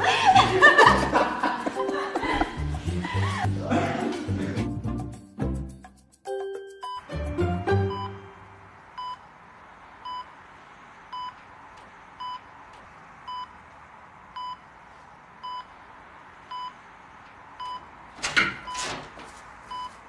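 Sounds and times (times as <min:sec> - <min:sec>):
electronic beeping: 0:07.8 - 0:08.4.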